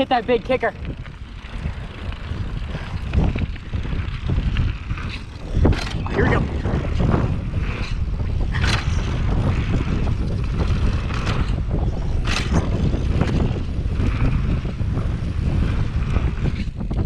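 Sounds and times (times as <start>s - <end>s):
tyres rumbling over dirt: 0.0s - 17.0s
wind buffeting microphone: 0.0s - 17.0s.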